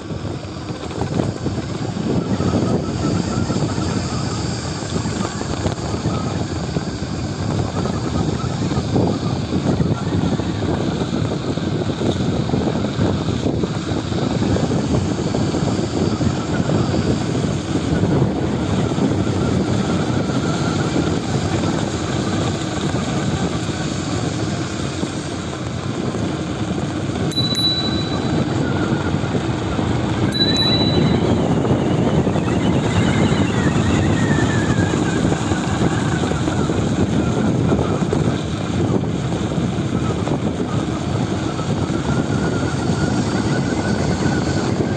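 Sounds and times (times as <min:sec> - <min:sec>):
wind buffeting microphone: 0:00.0 - 0:44.9
faint whine: 0:27.2 - 0:38.2
short high beeps: 0:27.3 - 0:28.9, 0:30.3 - 0:31.6.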